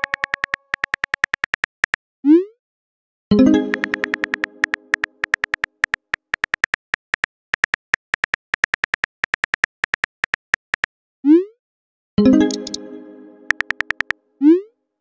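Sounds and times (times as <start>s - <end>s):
keyboard click taps: 0.0s - 2.0s, 3.7s - 10.9s, 13.5s - 14.2s.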